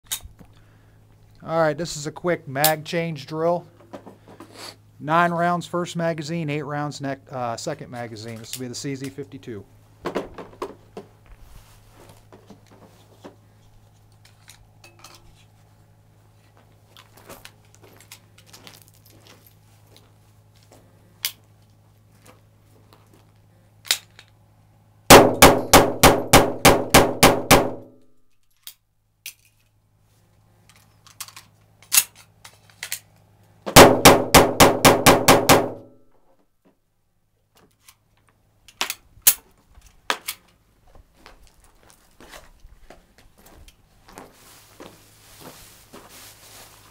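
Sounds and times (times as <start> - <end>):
pistol shots: 25.1 - 27.9, 33.7 - 35.9
metallic magazine change clicks: 31.1 - 33.2.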